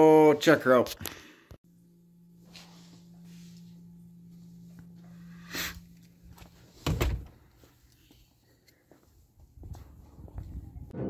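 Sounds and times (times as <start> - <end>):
footsteps on concrete: 7.4 - 10.6.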